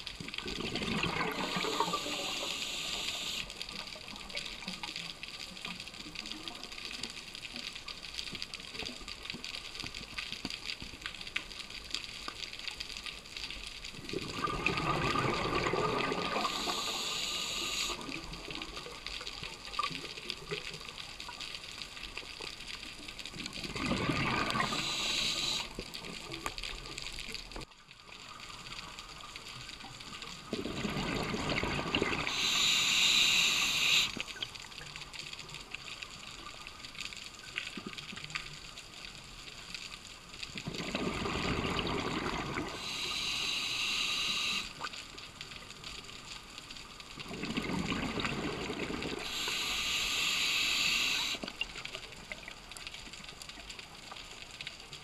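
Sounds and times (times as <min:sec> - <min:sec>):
underwater background noise: 0:00.0 - 0:55.0
exhaled bubbles rushing: 0:00.4 - 0:03.1, 0:14.0 - 0:18.0, 0:23.5 - 0:25.7, 0:30.4 - 0:34.2, 0:40.6 - 0:43.3, 0:47.2 - 0:51.4
regulator hiss: 0:01.2 - 0:04.1, 0:16.2 - 0:18.3, 0:24.4 - 0:25.8, 0:32.1 - 0:34.3, 0:42.7 - 0:44.8, 0:49.2 - 0:51.5.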